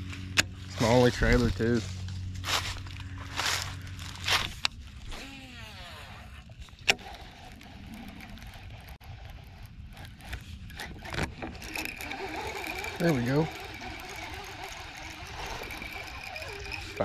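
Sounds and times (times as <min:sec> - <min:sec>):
footsteps crunching in dry leaves: 0:00.0 - 0:05.1
fishing reel whirring: 0:02.8 - 0:17.0
fishing reel cranking: 0:05.0 - 0:17.0
fishing reel click: 0:06.8 - 0:17.0.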